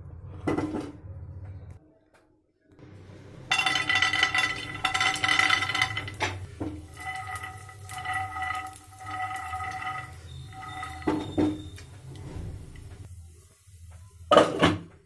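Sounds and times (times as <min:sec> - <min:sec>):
peanuts sizzling in oil: 0:03.5 - 0:14.6.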